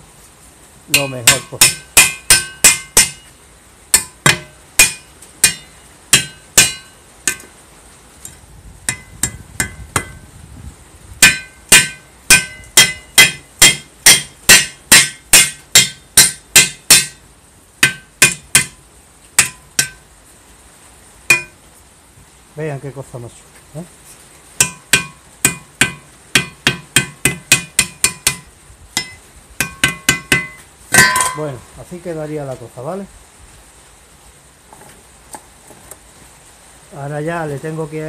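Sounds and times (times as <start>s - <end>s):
hammer blows on metal: 0.9s - 7.6s, 8.9s - 10.4s, 11.2s - 17.2s, 17.8s - 18.8s, 24.6s - 31.7s.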